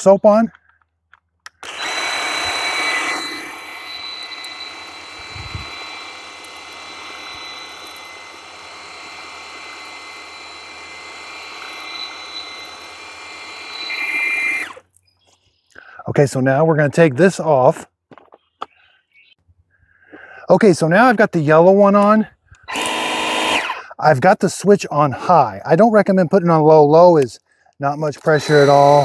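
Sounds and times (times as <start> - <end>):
pump whining: 1.4 - 14.9, 22.7 - 23.9, 28.2 - 29.0.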